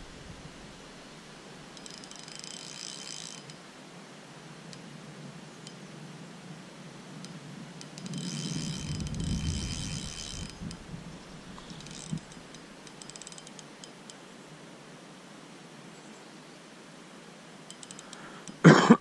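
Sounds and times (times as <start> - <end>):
fishing reel drag clicking: 1.7 - 3.6, 7.2 - 14.2, 17.7 - 18.6.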